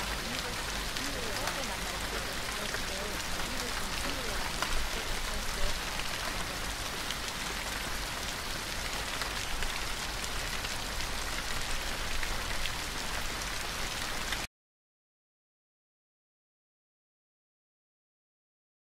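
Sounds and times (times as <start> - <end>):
raindrop clicks: 0.0 - 13.4
steady rain hiss: 0.0 - 14.5.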